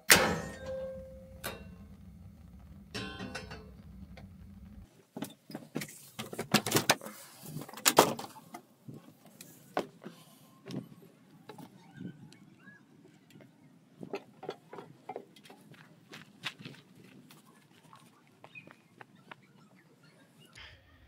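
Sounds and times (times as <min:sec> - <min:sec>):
steady low hum: 0:00.1 - 0:04.9.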